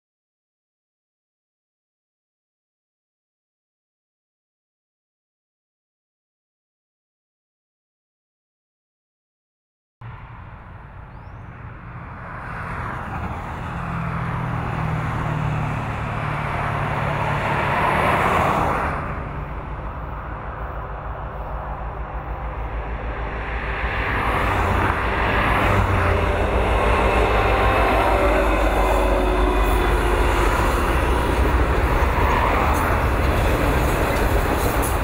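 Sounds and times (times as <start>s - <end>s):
diesel locomotive engines passing: 10.0s - 35.0s
train wheels clicking on rails: 26.0s - 35.0s.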